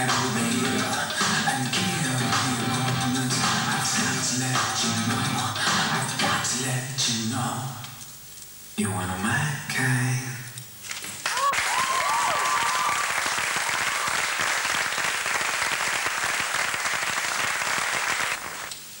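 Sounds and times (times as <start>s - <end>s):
music: 0.0s - 7.0s
audience applause: 10.9s - 18.8s
audience whoops: 11.3s - 15.0s.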